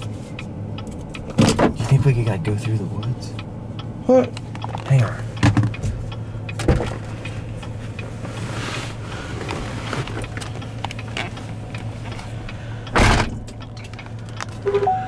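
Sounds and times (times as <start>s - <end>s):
car engine idling: 0.0s - 15.0s
loud thump: 12.9s - 13.4s.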